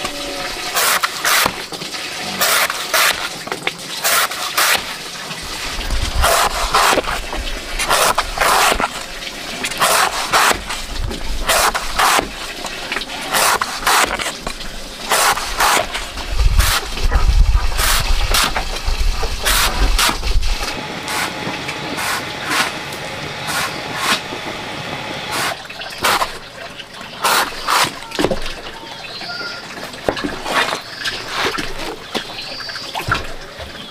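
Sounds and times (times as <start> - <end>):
knife slicing on wooden block: 22.0 - 22.8, 23.4 - 24.2.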